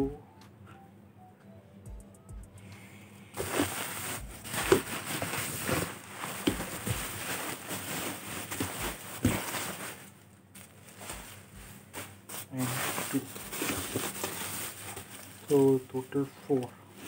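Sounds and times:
bubble wrap crinkling: 3.4 - 17.0.

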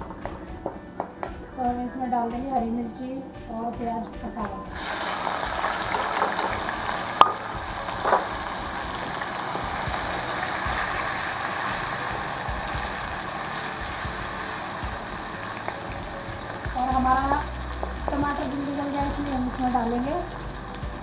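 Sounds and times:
tomatoes sizzling in hot oil: 4.7 - 21.0.

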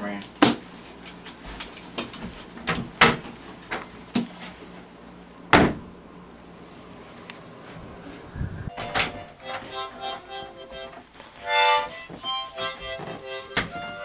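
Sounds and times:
footsteps: 7.6 - 14.0.

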